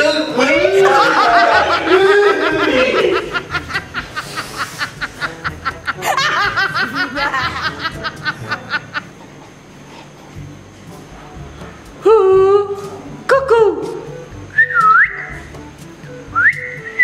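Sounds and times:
music: 0:00.0 - 0:17.0
men laughing hard: 0:00.6 - 0:09.4.

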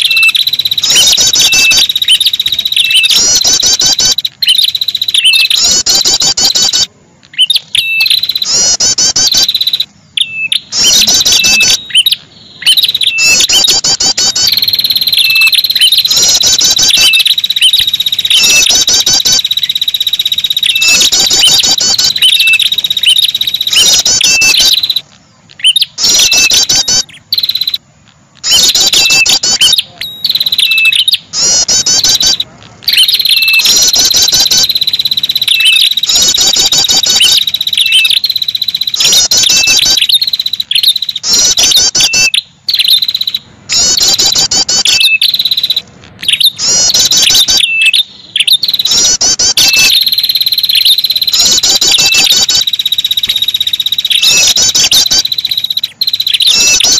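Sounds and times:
steady high-pitched buzz: 0:00.0 - 0:42.6
rapid high bird calls: 0:00.0 - 0:56.9.

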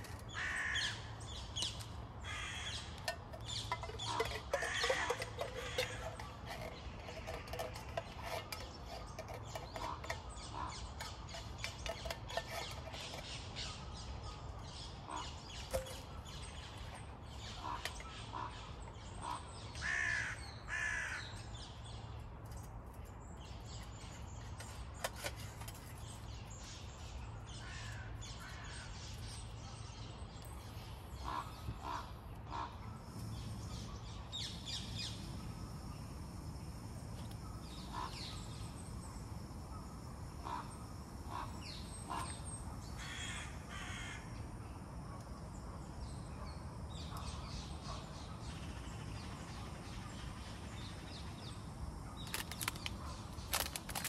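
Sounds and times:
crows cawing: 0:00.3 - 0:01.2, 0:02.2 - 0:03.1, 0:03.7 - 0:06.2, 0:17.6 - 0:21.4, 0:43.0 - 0:44.3.

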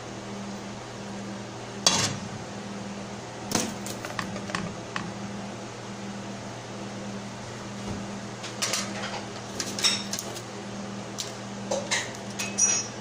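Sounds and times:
steady low hum: 0:00.0 - 0:13.0
metal pot and utensils clinking: 0:11.8 - 0:13.0.

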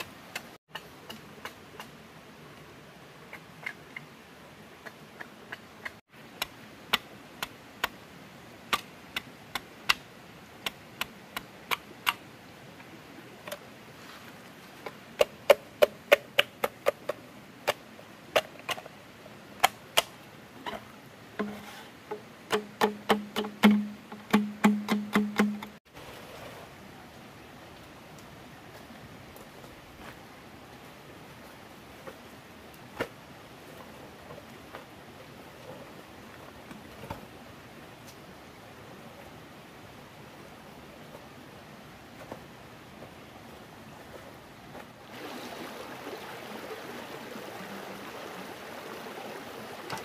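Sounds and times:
blade chopping wood: 0:22.5 - 0:25.8.

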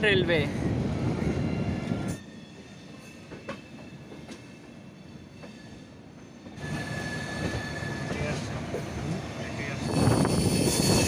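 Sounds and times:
train wheels rolling on track: 0:00.0 - 0:11.0.

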